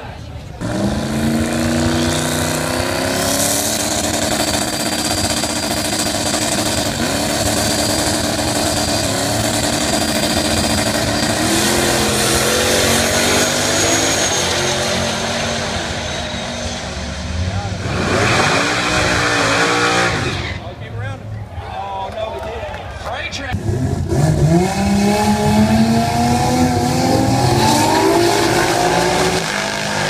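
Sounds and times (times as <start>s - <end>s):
steady high whine: 0.3s - 20.9s
drag car engines running: 0.4s - 21.4s, 23.4s - 30.0s.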